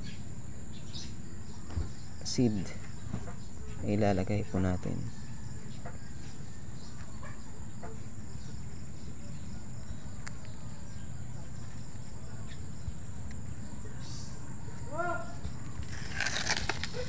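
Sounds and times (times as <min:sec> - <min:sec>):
faint bird calls: 0:05.1 - 0:08.6.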